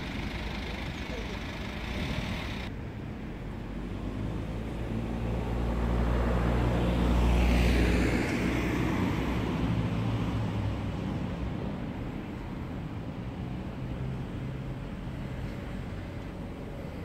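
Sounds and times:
vehicle engine hum passing: 3.4s - 17.0s.

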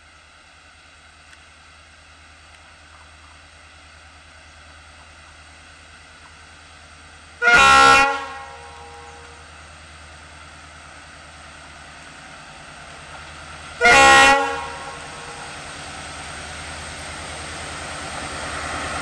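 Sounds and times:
locomotive engine rumble: 0.0s - 19.0s
train horn blasts: 7.4s - 9.5s, 13.8s - 15.6s.

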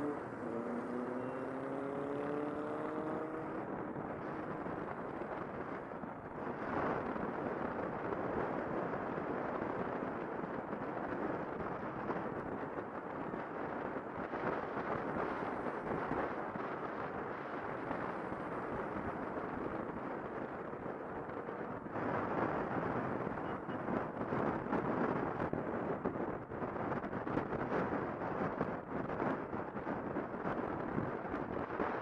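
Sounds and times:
motorcycle engine: 0.0s - 3.8s
road noise: 0.0s - 32.0s
wind rushing over microphone: 0.0s - 32.0s.

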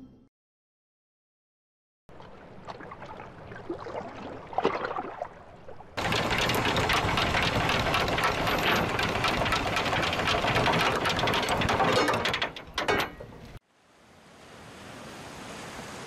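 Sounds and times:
anchor chain rattling: 6.0s - 13.6s
anchor clanking: 6.0s - 13.6s.

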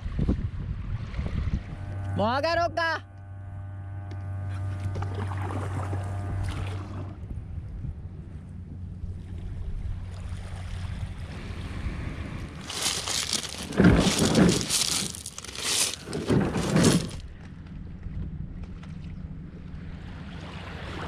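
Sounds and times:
steady low hum: 0.0s - 21.0s
kayak scraping over pebbles: 12.4s - 17.4s
footsteps crunching on pebbles: 12.6s - 17.2s.

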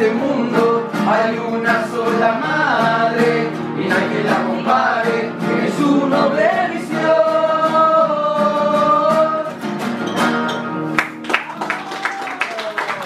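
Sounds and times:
voices singing in harmony: 0.0s - 9.5s
acoustic guitars strumming: 0.0s - 11.8s.

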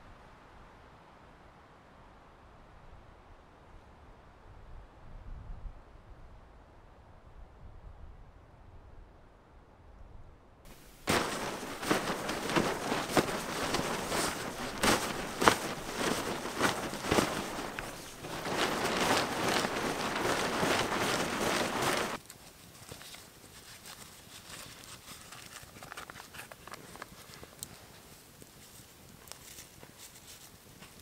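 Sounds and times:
campfire crackling: 10.7s - 24.9s, 26.6s - 31.0s
tarp rustling and snapping: 10.7s - 27.7s.

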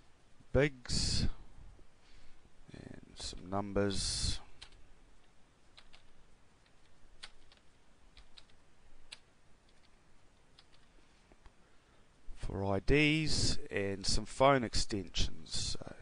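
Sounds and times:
faint keyboard typing: 4.4s - 11.6s.

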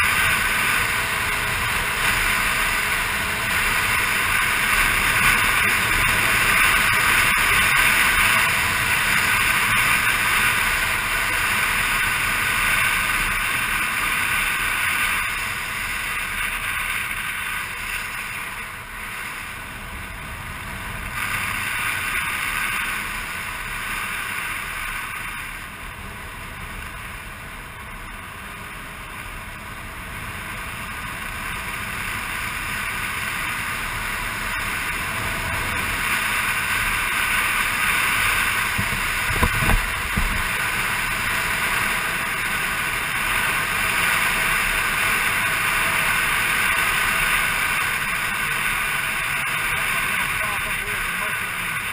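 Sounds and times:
scooter engine: 0.0s - 51.9s
wind rushing past camera: 34.2s - 50.4s.

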